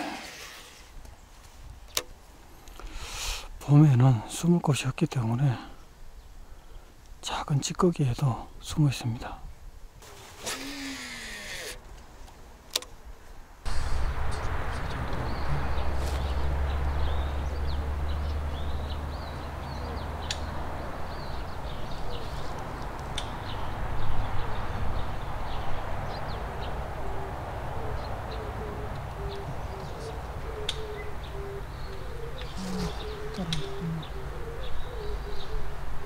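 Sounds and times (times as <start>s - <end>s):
small birds chirping: 14.0s - 35.8s
dove cooing: 27.0s - 36.0s.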